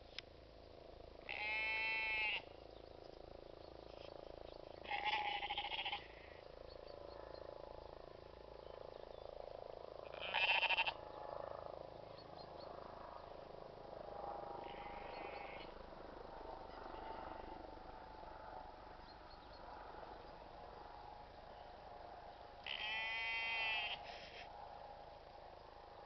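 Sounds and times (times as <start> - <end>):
faint background hum: 0.0 - 26.0
sheep bleating: 1.3 - 2.5, 4.8 - 6.3, 10.0 - 11.0, 14.6 - 15.7, 22.6 - 24.3.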